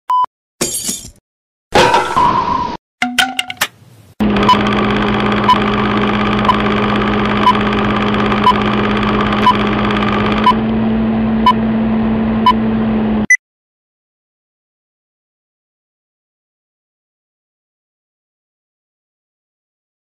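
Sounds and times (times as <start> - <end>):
film projector whirring and rattling: 4.2 - 10.8.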